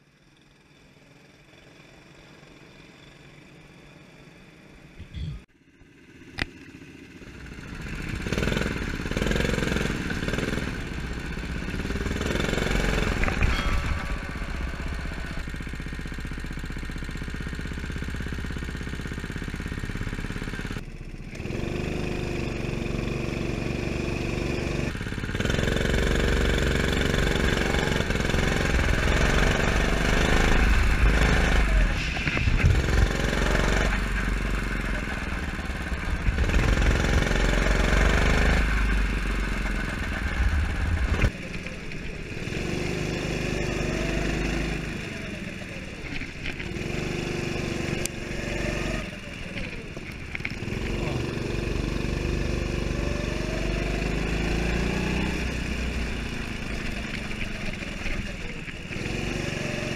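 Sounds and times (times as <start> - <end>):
go-kart engine running hard: 5.9 - 59.9.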